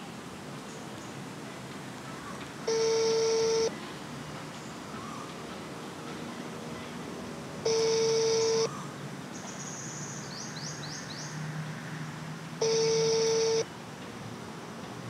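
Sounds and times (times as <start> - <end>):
telephone ringback tone: 2.7 - 3.7, 7.6 - 8.7, 12.6 - 13.7.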